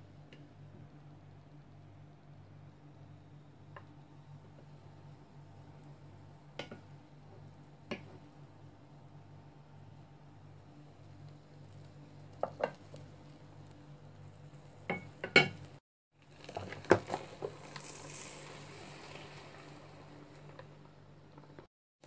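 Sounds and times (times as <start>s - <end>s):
bread sizzling on hot plates: 4.3s - 21.6s.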